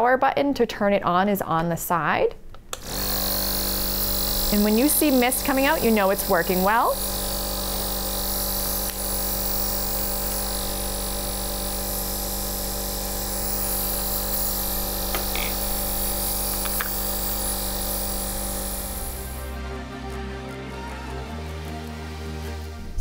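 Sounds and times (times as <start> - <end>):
nebulizer motor humming: 2.7 - 19.6
air hissing: 2.8 - 19.5.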